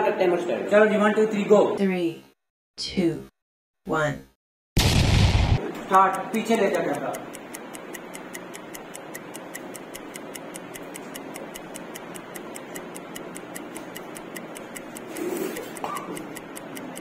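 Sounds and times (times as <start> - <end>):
timer ticking: 5.6 - 17.0.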